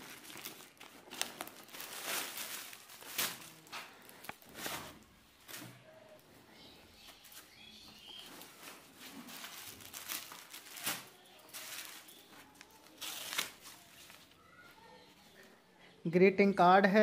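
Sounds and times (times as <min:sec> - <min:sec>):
plastic packaging crinkling: 0:00.0 - 0:05.9, 0:07.2 - 0:14.6.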